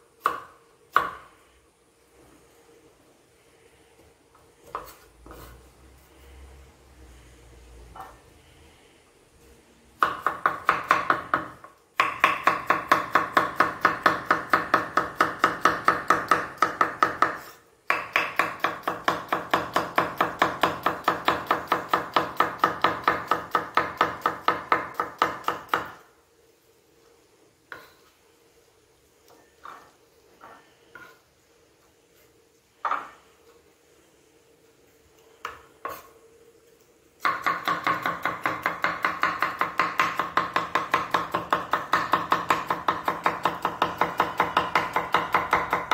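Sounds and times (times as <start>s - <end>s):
knife chopping on cutting board: 37.2s - 45.9s.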